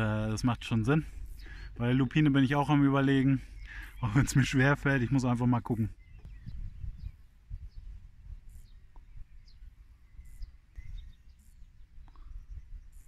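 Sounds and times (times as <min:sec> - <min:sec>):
bird chirps: 0:00.0 - 0:13.0
wind rumble on microphone: 0:00.0 - 0:13.0.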